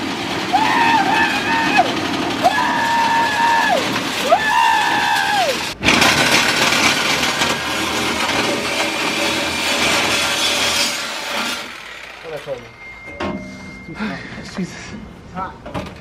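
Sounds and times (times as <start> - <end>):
power tool cutting metal: 0.0 - 12.8
power tool motor spinning: 0.1 - 12.6.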